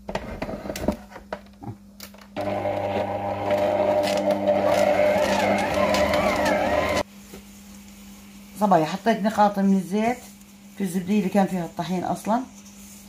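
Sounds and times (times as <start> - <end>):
stand mixer kneading dough: 2.4 - 7.0.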